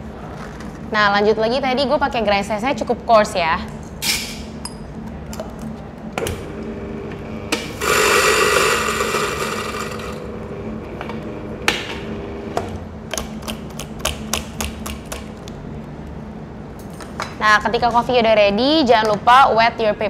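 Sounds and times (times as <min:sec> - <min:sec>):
coffee grinder grinding beans: 0:07.6 - 0:10.5.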